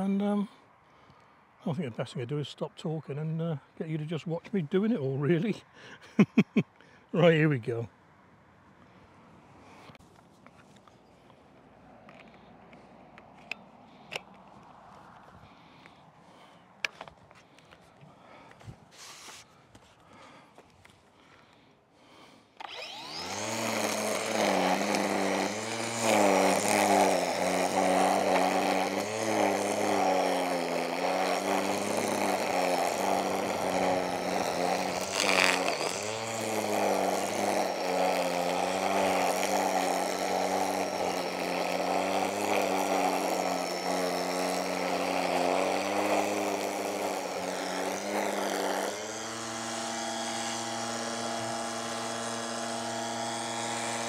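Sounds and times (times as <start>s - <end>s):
small engine running hard: 22.1s - 54.0s.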